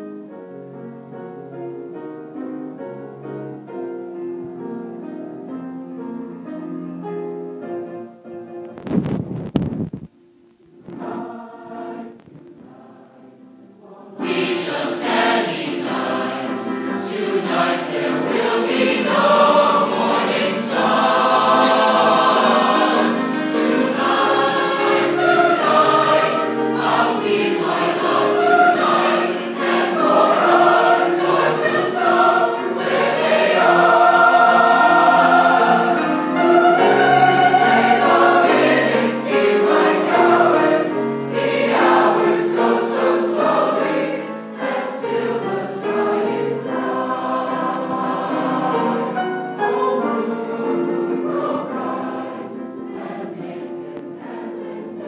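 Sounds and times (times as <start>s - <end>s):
mixed choir singing: 10.8s - 55.0s.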